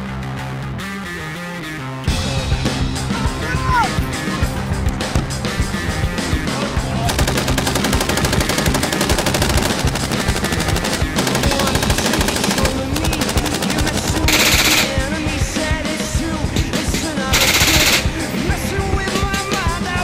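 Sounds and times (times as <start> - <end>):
background music: 0.0 - 20.0
machine gun firing bursts: 7.1 - 15.2, 17.3 - 18.3.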